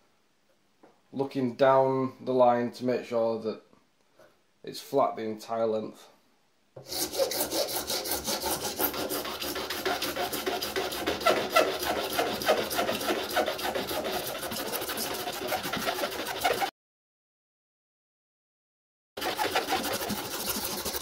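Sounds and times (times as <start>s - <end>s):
hand file rasping: 6.8s - 16.7s, 19.2s - 21.0s.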